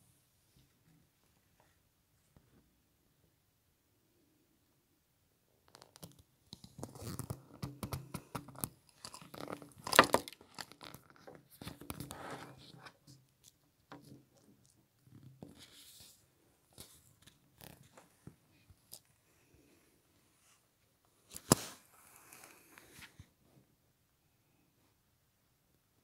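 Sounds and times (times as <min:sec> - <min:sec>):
phone handling rustling and crackling: 0:05.8 - 0:13.0.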